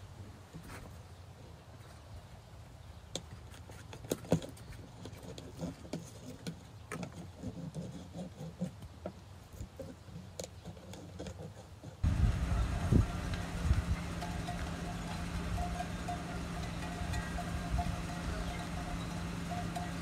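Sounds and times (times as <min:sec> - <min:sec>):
herd moving low rumble: 0:12.0 - 0:20.0
hooves crunching on snow: 0:12.0 - 0:20.0.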